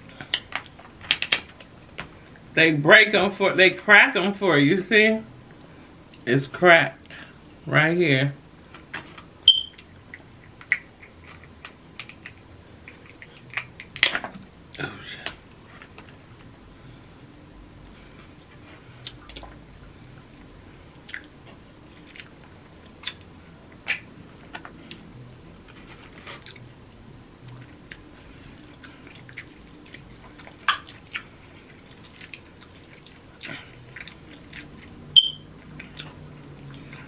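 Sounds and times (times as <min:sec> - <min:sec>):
chewing and mouth noises: 0:09.7 - 0:14.1, 0:17.8 - 0:20.2, 0:20.9 - 0:26.7, 0:27.4 - 0:37.0
crab shells clicking: 0:10.5 - 0:14.1.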